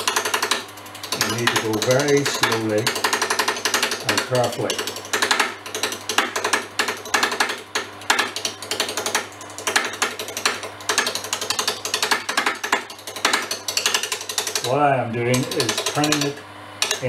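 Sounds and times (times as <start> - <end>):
lathe tool chattering on wood: 0.0 - 17.0
steady low hum: 0.0 - 17.0.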